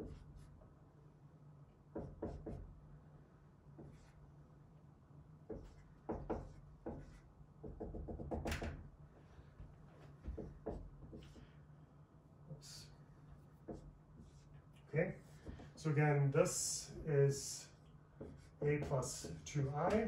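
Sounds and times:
marker tapping on whiteboard: 1.9 - 2.7, 5.4 - 8.8, 10.2 - 11.5, 13.6 - 14.4, 15.4 - 15.7, 18.2 - 20.0.

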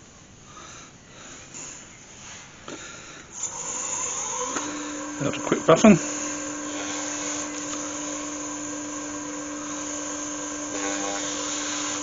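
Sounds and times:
wood lathe motor hum and whine: 3.3 - 12.0.

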